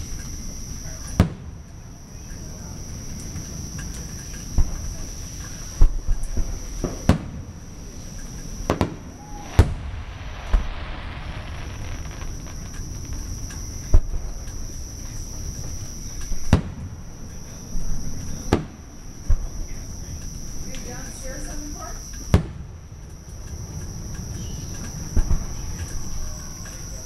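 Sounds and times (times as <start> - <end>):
high-pitched insect chorus: 1.8 - 27.0
hissing crackle: 2.9 - 18.5
firework shells bursting: 5.9 - 16.8.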